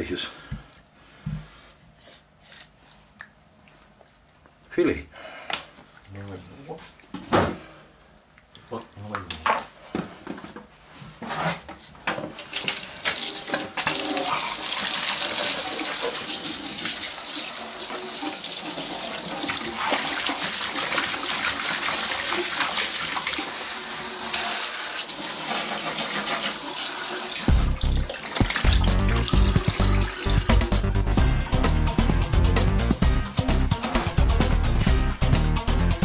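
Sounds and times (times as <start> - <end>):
water running into a metal sink: 12.6 - 31.2
water splashing over fish: 27.5 - 30.6
loud music: 27.5 - 36.0.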